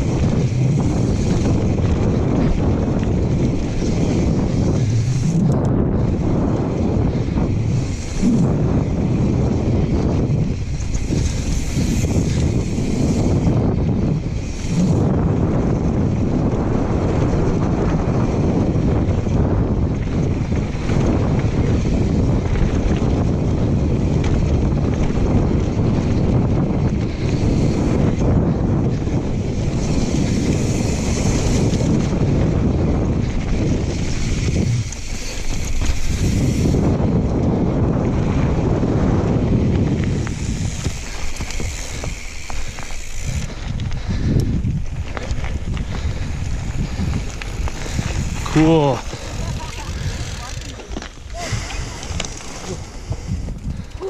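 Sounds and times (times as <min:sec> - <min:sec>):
bike clattering: 0:00.0 - 0:54.0
tyres rumbling on dirt: 0:00.0 - 0:54.0
wind buffeting microphone: 0:00.0 - 0:54.0.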